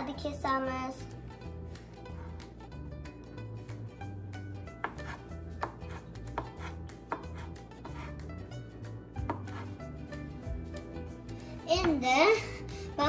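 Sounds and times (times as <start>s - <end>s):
quiet background music: 0.0s - 13.0s
knife chopping on cutting board: 4.7s - 8.3s, 9.2s - 9.8s.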